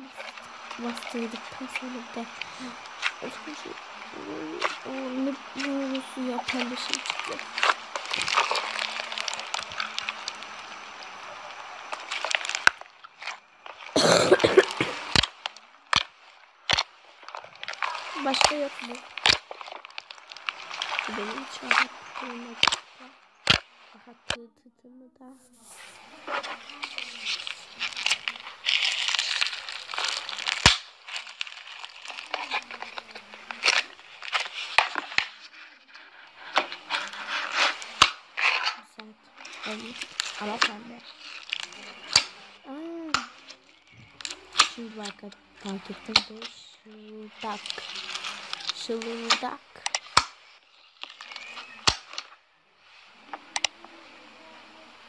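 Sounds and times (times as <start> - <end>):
slime crackling and crinkling: 0.0 - 24.4, 25.2 - 55.0
person coughing: 14.0 - 15.0
foam slime squeezed by hand: 25.6 - 35.6.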